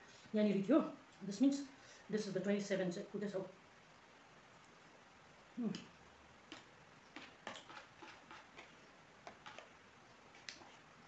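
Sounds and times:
metal spoon scraping plastic bowl: 7.2s - 9.7s.

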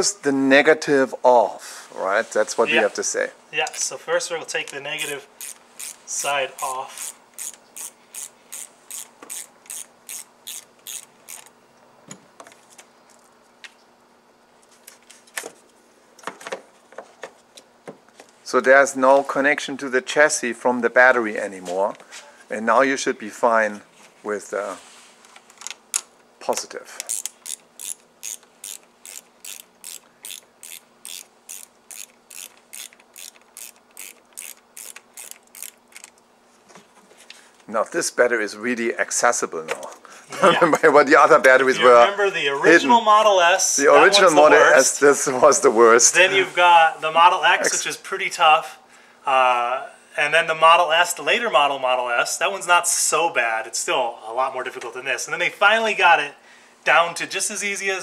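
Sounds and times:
socket wrench ratchet clicking: 5.0s - 6.0s, 6.6s - 11.5s, 27.0s - 36.2s.

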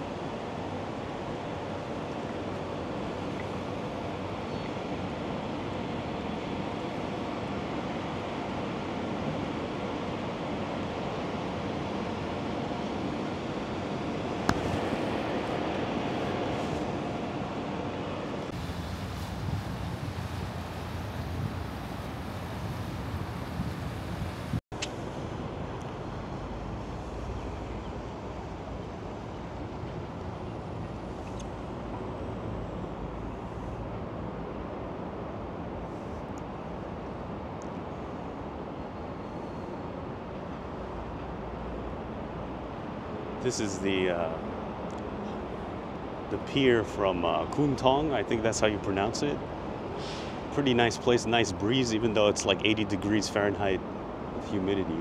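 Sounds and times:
outdoor rumble and hiss: 0.0s - 55.0s
steady rushing ambient noise: 0.0s - 55.0s
wind buffeting microphone: 14.3s - 24.6s.

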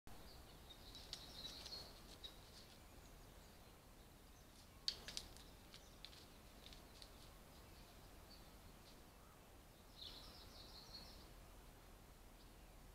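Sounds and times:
small birds chirping faintly: 0.1s - 12.9s
sharp clicks: 4.8s - 7.1s.

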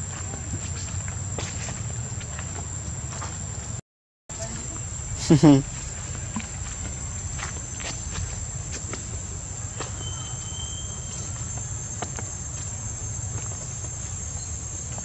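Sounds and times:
insects droning: 0.0s - 15.0s
thin whistle: 9.9s - 11.5s.

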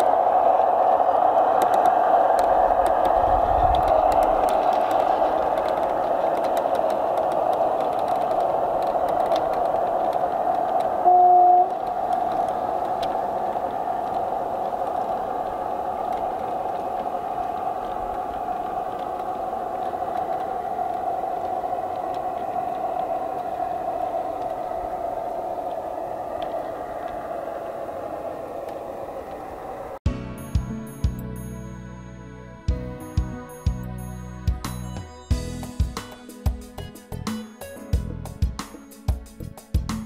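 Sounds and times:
model train running on track: 0.0s - 30.0s
train horn toot: 11.0s - 11.8s.

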